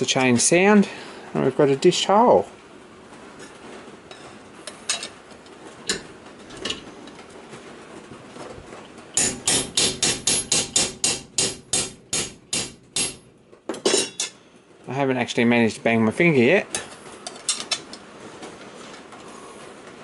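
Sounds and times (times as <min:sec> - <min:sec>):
hammer striking steel punch: 0:09.2 - 0:13.2.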